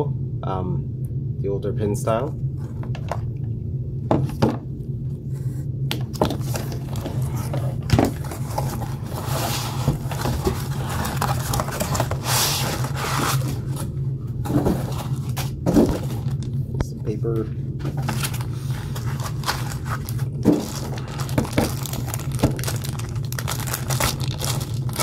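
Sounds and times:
steady low hum: 0.0 - 25.0
cardboard and foam rustling: 6.1 - 16.5, 17.2 - 25.0.

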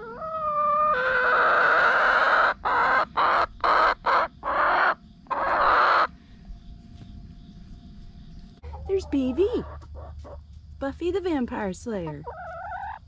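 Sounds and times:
chicken squawking: 0.0 - 6.1, 8.6 - 10.4, 12.1 - 13.0.

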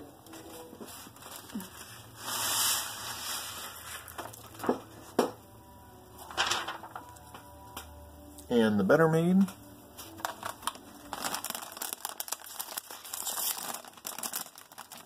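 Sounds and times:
paper rustling and crinkling: 0.3 - 5.0, 6.2 - 7.4, 10.0 - 15.0.

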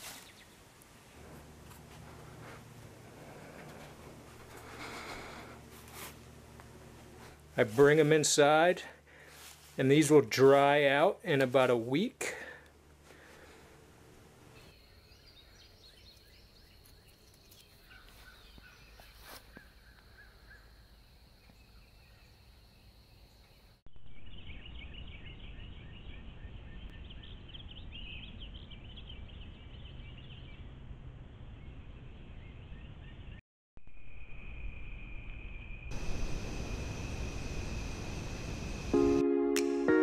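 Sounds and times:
steady high trill: 35.9 - 40.0.

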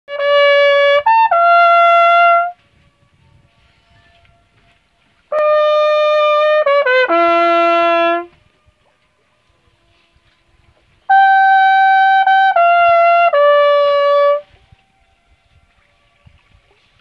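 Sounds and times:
trumpet playing held notes: 0.1 - 8.5, 11.0 - 15.8.

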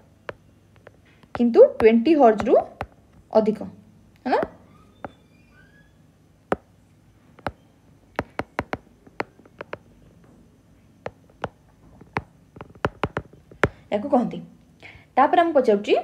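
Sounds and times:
stylus tapping on tablet: 0.0 - 3.3, 6.5 - 6.7, 7.4 - 10.0, 11.0 - 13.9.

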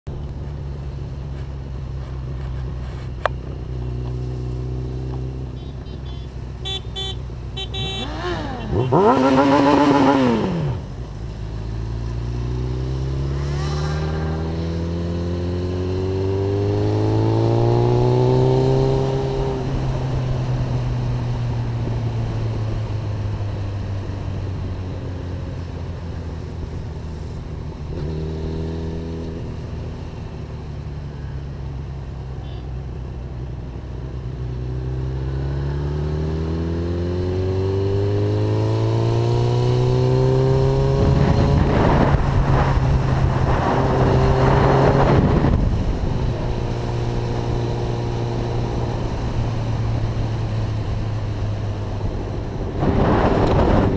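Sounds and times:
motorcycle engine accelerating: 0.1 - 53.9.

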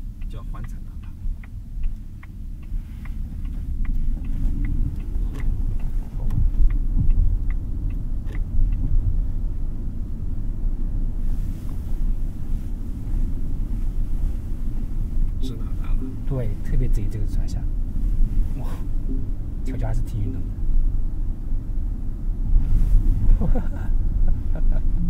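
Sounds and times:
faint even ticking: 0.0 - 11.2, 14.8 - 20.7
road and tyre rumble: 0.0 - 25.0.

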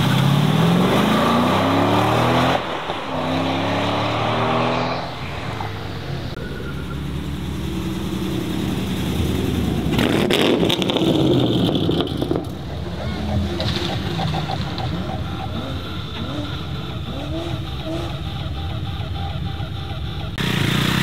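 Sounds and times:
car engine accelerating: 0.0 - 21.0
engine crackles: 0.0 - 21.0
engines revving: 0.0 - 21.0.

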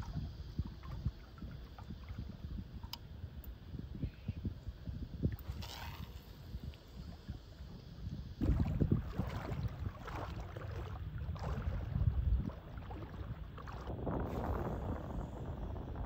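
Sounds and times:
wind buffeting microphone: 0.0 - 16.0
small waves lapping: 8.4 - 15.2.

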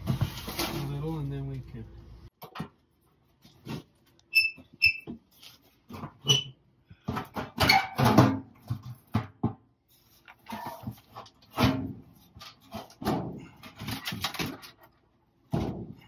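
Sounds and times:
short high squeaks: 4.3 - 5.1
boxes and trunk knocking and scraping: 10.5 - 14.7, 15.5 - 16.0.

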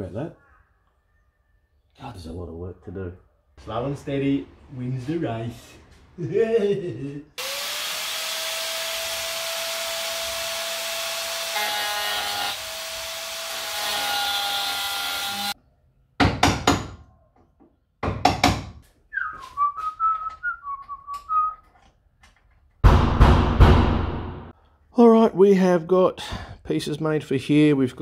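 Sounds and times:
handheld power tool running: 7.4 - 15.6
person whistling notes: 19.1 - 21.6
sharp knocks: 22.8 - 24.5.

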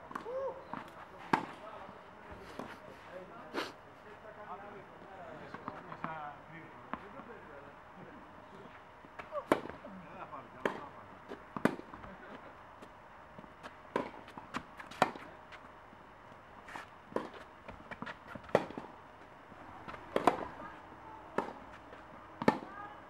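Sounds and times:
racket hitting tennis ball: 9.2 - 9.8, 10.6 - 10.8, 11.6 - 12.0, 13.9 - 15.3, 16.7 - 18.9, 19.9 - 20.6, 21.4 - 21.7, 22.4 - 22.7
tennis ball bouncing: 10.6 - 12.2, 13.9 - 15.3, 17.1 - 19.0, 19.9 - 20.7, 21.3 - 21.8, 22.4 - 22.7.

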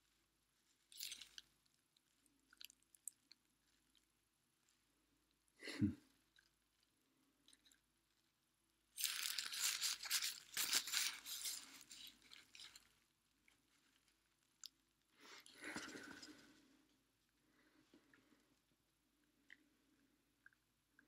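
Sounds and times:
bubble wrap crinkling: 0.9 - 1.4, 9.0 - 14.2.

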